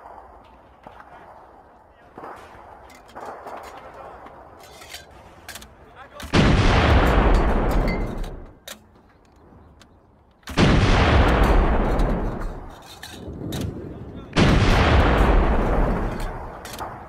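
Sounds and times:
artillery gun blast: 6.2 - 8.5, 10.5 - 12.7, 13.4 - 17.0
metal clanks and knocks: 7.0 - 9.1, 11.3 - 13.8.

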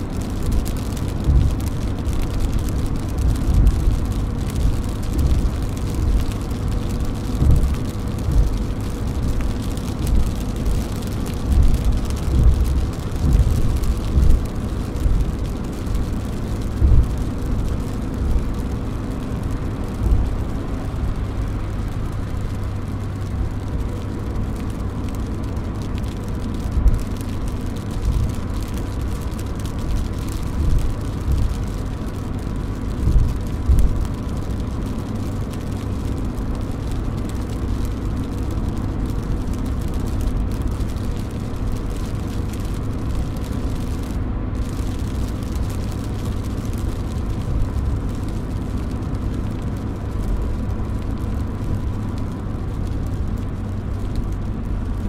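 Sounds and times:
rain pattering on car: 0.0 - 55.0
low thumps: 1.1 - 17.6.

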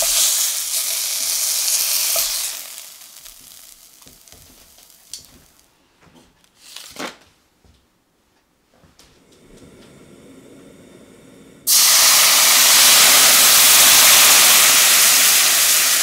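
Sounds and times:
chicken sizzling in oil: 0.0 - 5.6, 11.7 - 16.0.

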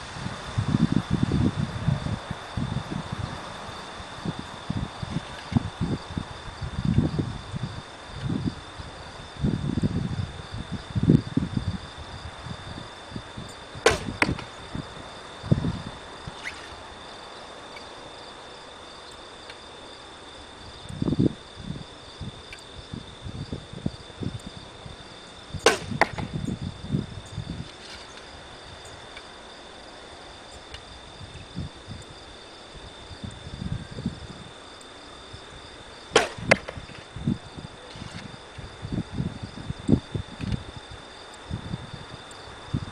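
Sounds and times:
insects droning: 0.0 - 42.9
arrow crack: 13.8 - 14.6, 25.6 - 26.3, 36.2 - 36.9
bow string snapping: 13.9 - 14.5, 36.2 - 36.8.

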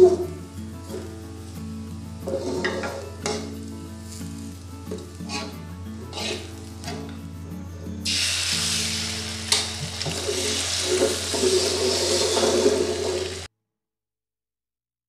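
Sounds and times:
egg sizzling in hot oil: 8.0 - 13.5.

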